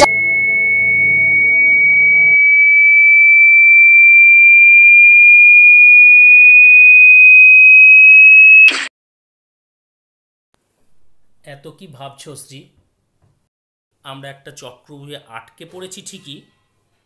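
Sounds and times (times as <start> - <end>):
high-pitched electronic sine tone: 0.0 - 8.9.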